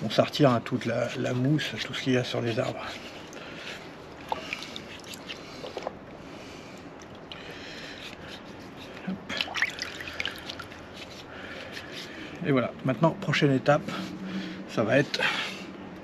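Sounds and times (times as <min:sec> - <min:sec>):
water sloshing in a basin: 0:00.0 - 0:12.2
water splashing: 0:04.1 - 0:06.0, 0:09.2 - 0:11.0.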